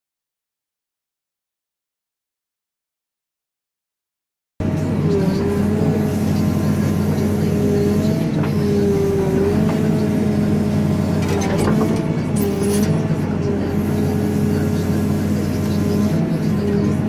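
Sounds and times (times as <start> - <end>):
diesel engine running: 4.6 - 17.0.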